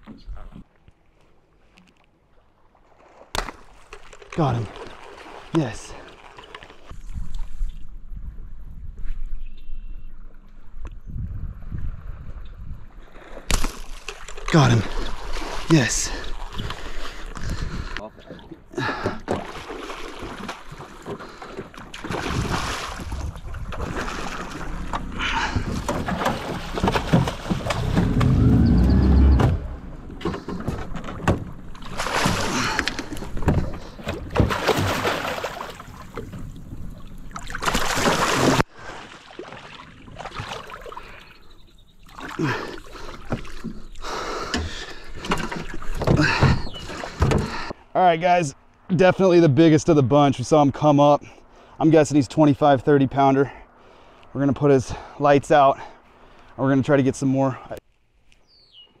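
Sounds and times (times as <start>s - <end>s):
fish thrashing and splashing: 2.9s - 6.9s, 19.3s - 28.3s, 31.4s - 41.2s.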